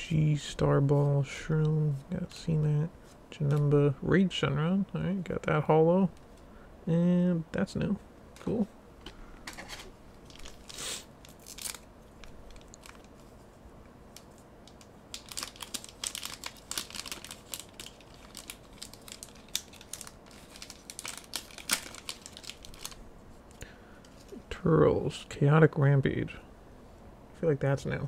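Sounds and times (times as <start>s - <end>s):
foil wrapper crinkling and tearing: 10.2s - 13.2s, 14.1s - 23.0s.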